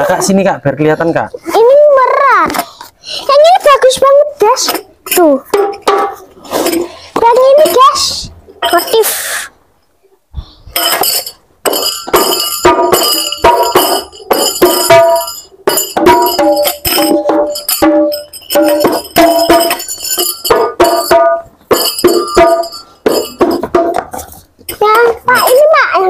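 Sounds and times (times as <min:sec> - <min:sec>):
tambourine-like jingling: 0:10.7 - 0:25.9
frame drums struck in quick rhythm: 0:11.0 - 0:24.2.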